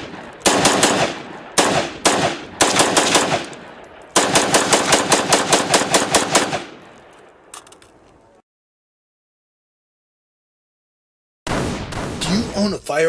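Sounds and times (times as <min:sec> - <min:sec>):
rifle shots cracking and echoing: 0:00.0 - 0:07.7, 0:11.5 - 0:12.7.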